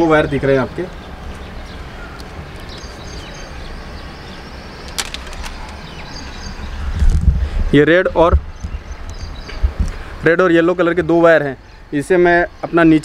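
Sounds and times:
background hiss: 0.0 - 13.0
sharp click: 4.9 - 5.8.

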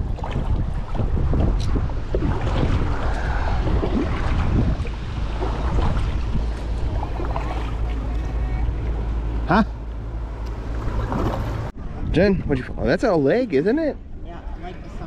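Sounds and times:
water lapping around kayak: 0.0 - 12.8
wind buffeting microphone: 0.0 - 15.0.

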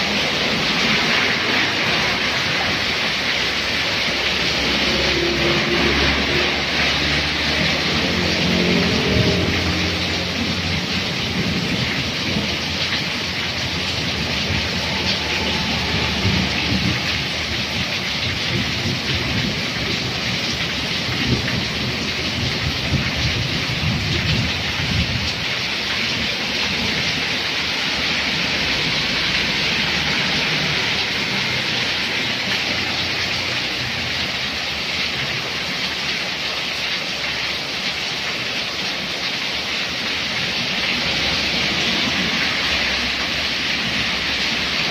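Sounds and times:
heavy rain pouring: 0.0 - 44.9
low rumble: 13.6 - 18.8.

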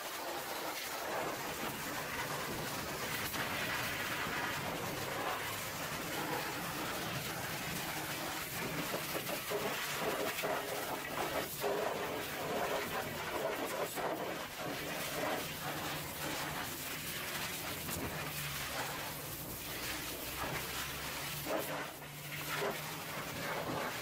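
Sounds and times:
pressure washer spray hissing: 0.0 - 24.0.

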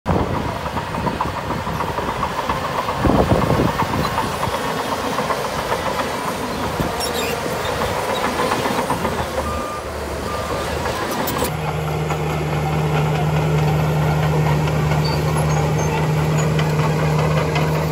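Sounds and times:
diesel engine rumbling: 0.1 - 17.9
reversing alarm beeping: 6.9 - 11.5.

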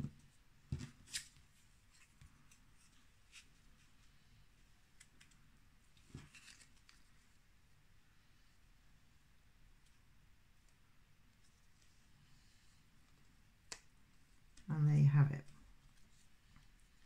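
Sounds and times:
cardstock handled by hand: 0.0 - 4.0, 4.9 - 7.2.

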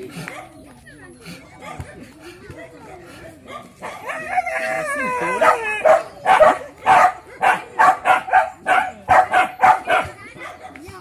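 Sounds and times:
dog barking rapidly: 5.4 - 10.8.

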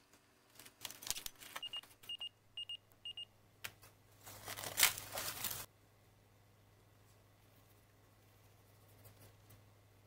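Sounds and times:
clingfilm crinkling: 4.2 - 5.7.

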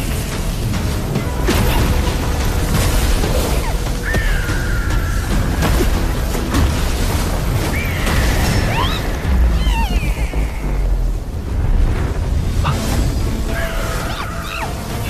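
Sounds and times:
dramatic film score: 0.0 - 15.0.

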